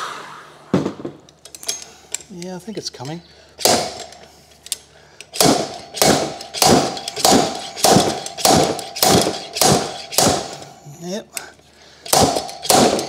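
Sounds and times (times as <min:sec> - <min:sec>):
slide hammer clanking on metal: 0:03.0 - 0:10.8.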